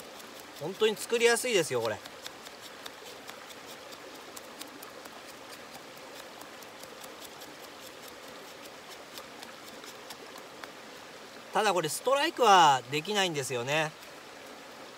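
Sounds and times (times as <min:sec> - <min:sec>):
knife scraping wood: 0:00.0 - 0:10.7.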